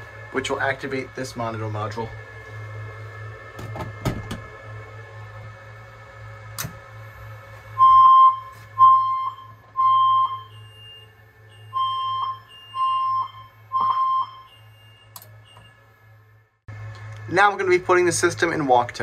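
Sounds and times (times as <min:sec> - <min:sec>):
fire alarm beeps: 0:07.8 - 0:15.9
click: 0:15.1 - 0:15.7.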